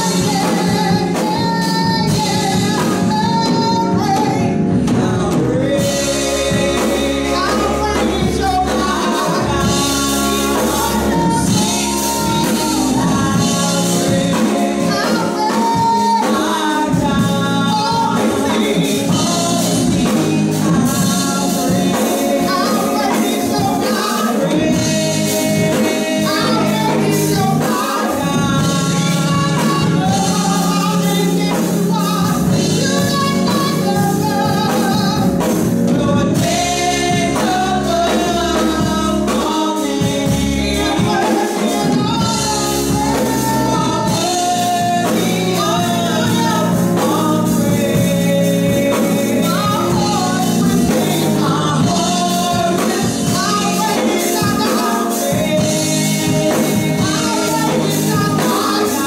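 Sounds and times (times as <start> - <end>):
instrumental accompaniment: 0.0 - 59.0
women singing gospel: 0.0 - 59.0.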